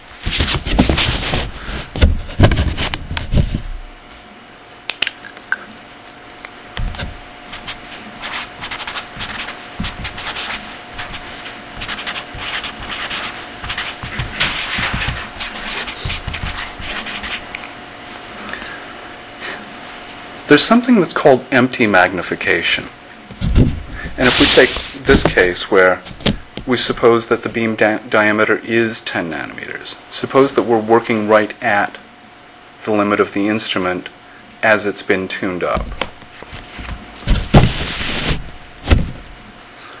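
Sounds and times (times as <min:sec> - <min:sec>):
faint steady hum: 0:00.0 - 0:40.0
marker scratching on board: 0:07.0 - 0:17.5
rubbing and scraping: 0:07.0 - 0:17.5, 0:24.2 - 0:25.5, 0:36.6 - 0:38.5.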